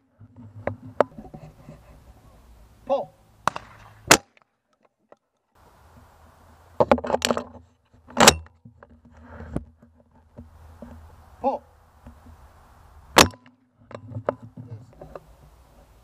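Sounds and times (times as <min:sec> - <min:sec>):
shotgun shot: 0:03.4 - 0:04.4.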